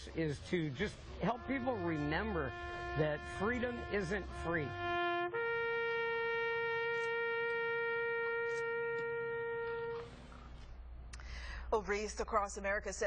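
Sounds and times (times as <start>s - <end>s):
brass horn long note: 1.2s - 10.7s.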